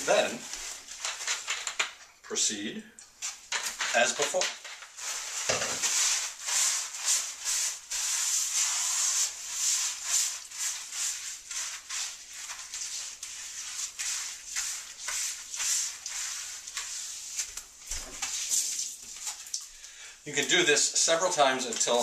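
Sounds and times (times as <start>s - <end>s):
paper towel scrubbing wooden board: 3.8s - 19.4s.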